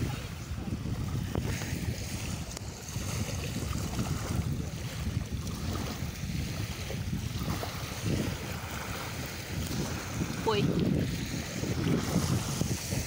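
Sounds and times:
small waves lapping at shore: 0.0s - 13.0s
wind buffeting microphone: 0.0s - 13.0s.

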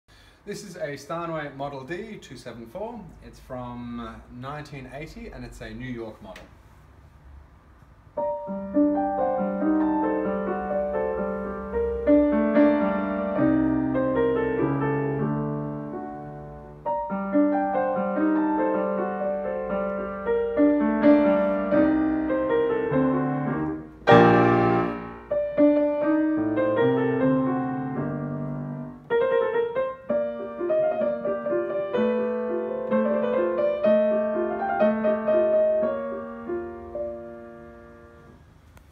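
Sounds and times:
grand piano playing: 8.2s - 38.4s.

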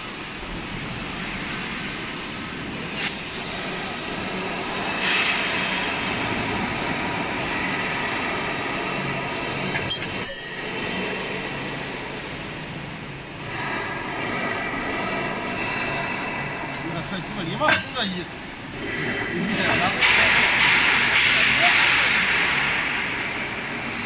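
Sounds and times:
workshop machinery droning: 0.0s - 24.0s
metal clinks: 9.8s - 11.0s
ringing metal clank: 9.8s - 11.0s.

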